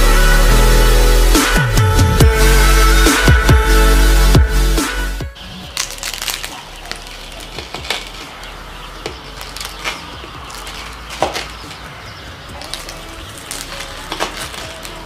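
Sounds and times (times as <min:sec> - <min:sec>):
knife crunching flaky pastry: 0:05.7 - 0:08.5, 0:12.5 - 0:15.0.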